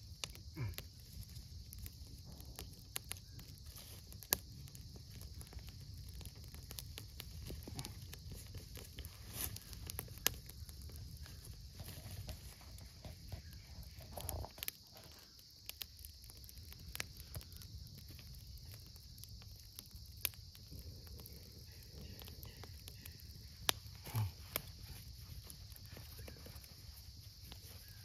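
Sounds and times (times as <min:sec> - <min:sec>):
campfire crackling and popping: 0:00.0 - 0:28.0
dry sticks rustling and knocking: 0:01.9 - 0:15.4, 0:21.9 - 0:28.0.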